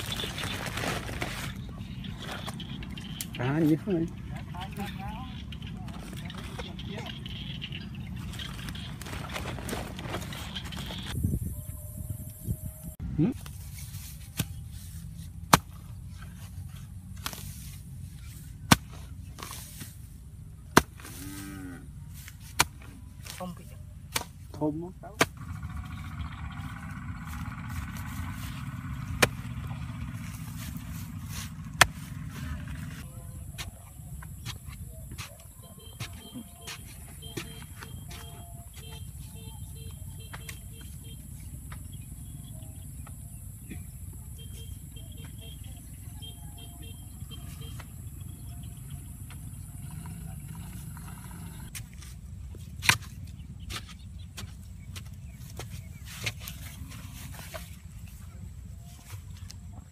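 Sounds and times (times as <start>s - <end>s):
wooden pole knocking and scraping earth: 0.0s - 11.2s, 13.4s - 20.1s, 20.7s - 21.4s, 22.1s - 25.6s, 27.2s - 39.1s, 51.7s - 59.9s
hoe striking dry soil: 18.6s - 20.0s, 20.7s - 21.4s, 22.2s - 23.5s, 24.1s - 25.8s, 27.3s - 33.0s, 33.6s - 38.9s, 51.7s - 57.8s.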